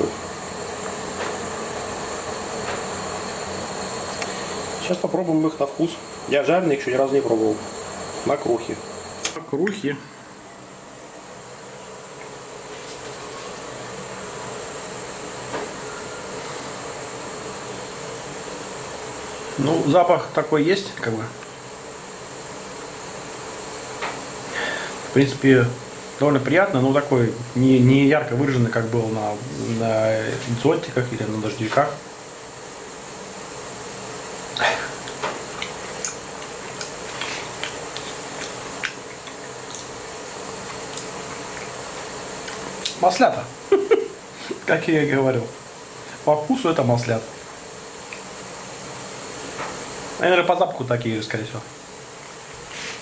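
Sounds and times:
fan whoosh with low hum: 0.0s - 53.0s
steady background hiss: 0.0s - 53.0s
chewing mouth clicks: 35.1s - 39.9s, 40.8s - 41.8s.

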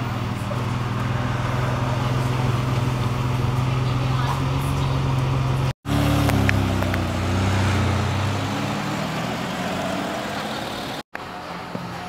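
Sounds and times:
car engine pulling away: 0.0s - 12.0s.

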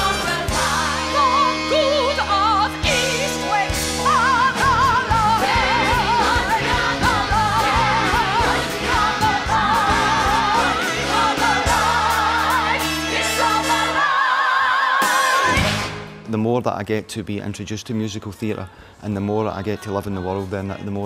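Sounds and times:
woman singing with vibrato: 0.0s - 15.9s.

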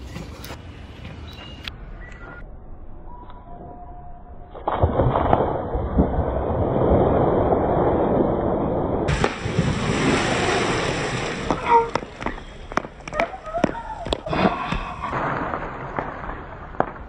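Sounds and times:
person splashing into pool: 4.6s - 8.0s, 9.1s - 16.2s
water splashing and churning: 4.6s - 16.0s.

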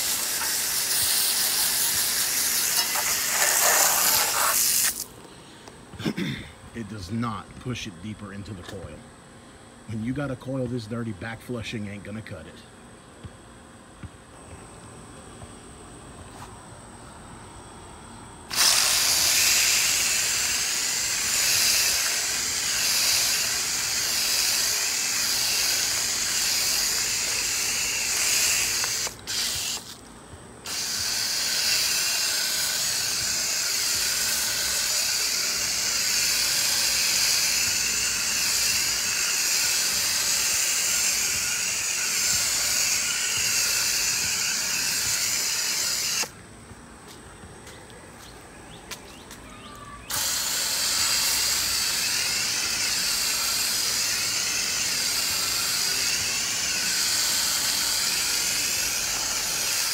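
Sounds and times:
spray gun hissing: 0.0s - 5.0s, 18.5s - 29.9s, 30.7s - 46.3s, 50.1s - 59.9s.

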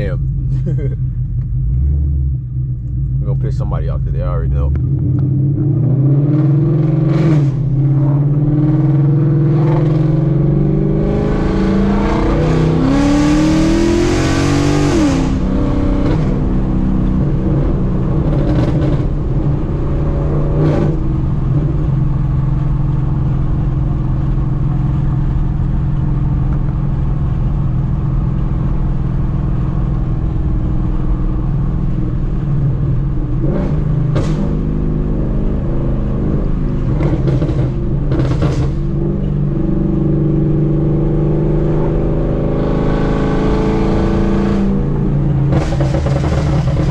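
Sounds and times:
car engine accelerating: 0.0s - 46.9s
exhaust cracks: 36.5s - 39.4s, 45.2s - 46.9s.

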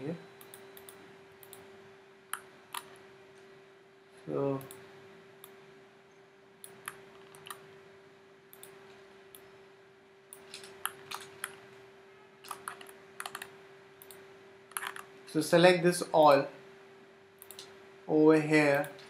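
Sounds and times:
faint steady hum: 0.0s - 19.0s
keyboard and mouse clicks: 6.6s - 7.6s, 10.4s - 11.6s, 12.4s - 15.1s.

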